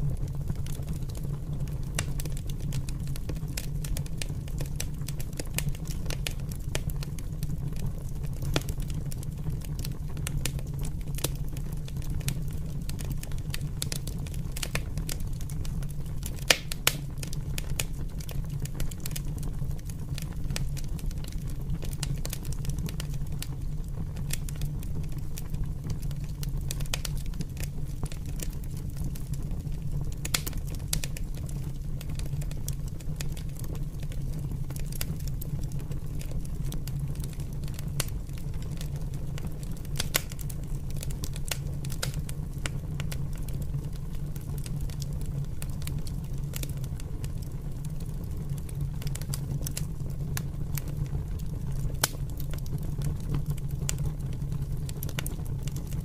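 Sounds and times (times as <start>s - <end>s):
fire crackling: 0.0s - 56.0s
sharp pops from fire: 16.2s - 17.9s, 30.2s - 31.4s, 37.2s - 43.2s, 52.0s - 52.6s.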